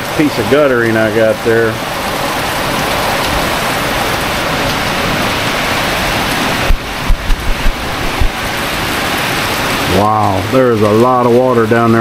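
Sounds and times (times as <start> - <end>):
heavy rain: 0.0 - 12.0
low thumps: 6.2 - 8.6.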